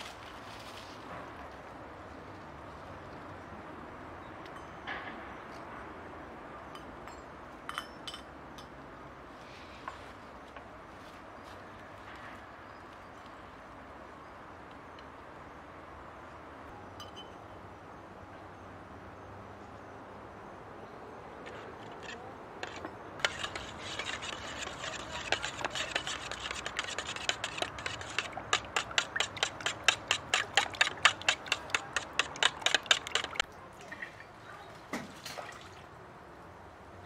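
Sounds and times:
metal spoon clinking in bowl: 22.6 - 33.4.

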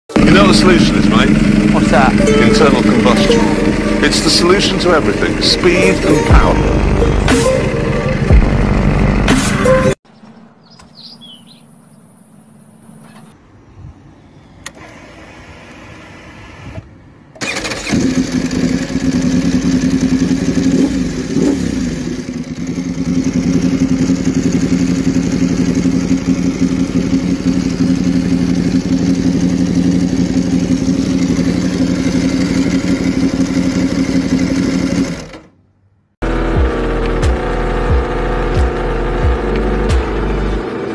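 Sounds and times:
motorcycle engine idling: 0.1 - 9.9, 17.6 - 35.4, 36.2 - 40.9
motorcycle starter cranking: 14.6 - 35.6.

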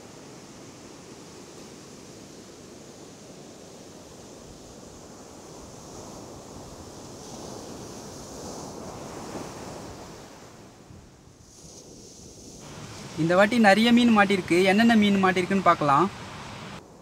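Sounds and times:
ocean surf breaking: 0.0 - 17.0
foam washing up sand: 11.4 - 17.0.

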